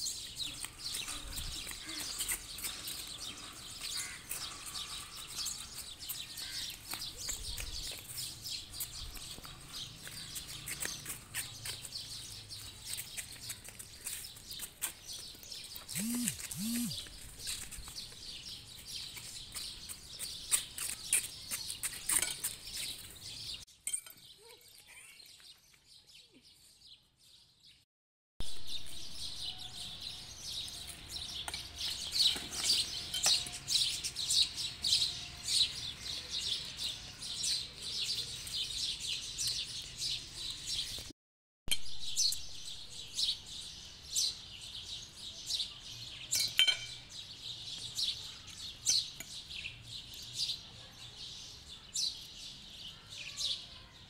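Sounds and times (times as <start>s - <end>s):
birds chirping: 0.0s - 23.6s, 28.4s - 41.1s.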